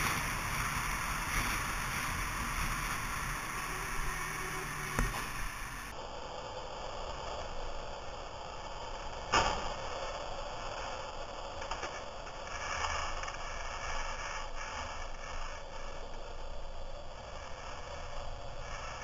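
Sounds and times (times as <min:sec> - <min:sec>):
motorcycle road noise: 0:00.0 - 0:05.9
wind noise: 0:00.0 - 0:05.9.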